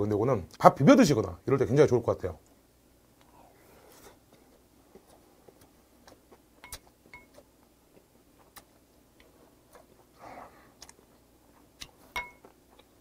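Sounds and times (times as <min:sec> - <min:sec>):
chewing mouth clicks: 0:04.9 - 0:10.2, 0:10.8 - 0:13.0
utensil clinking on ceramic bowl: 0:06.6 - 0:07.3, 0:12.1 - 0:12.5.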